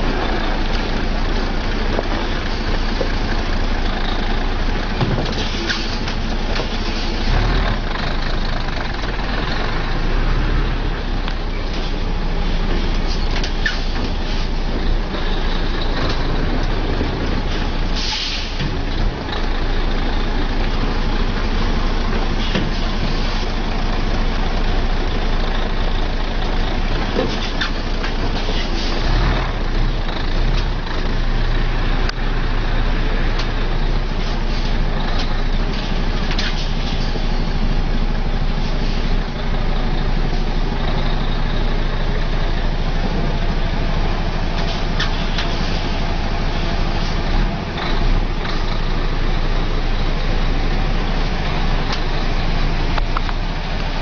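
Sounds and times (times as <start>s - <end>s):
truck diesel engine running: 0.0s - 54.0s
air hiss: 18.0s - 18.6s.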